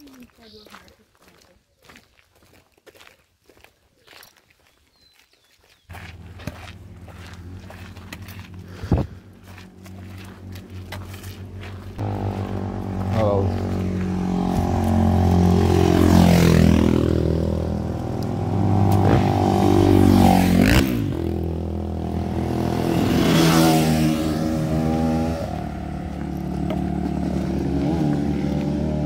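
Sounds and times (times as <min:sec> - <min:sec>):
motorcycle engines revving and passing: 0:05.9 - 0:29.0.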